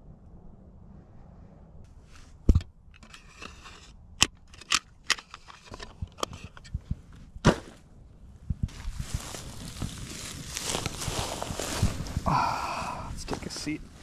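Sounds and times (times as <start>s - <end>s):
footsteps crunching dry vegetation: 8.6s - 14.0s
vegetation rustling: 8.7s - 14.0s.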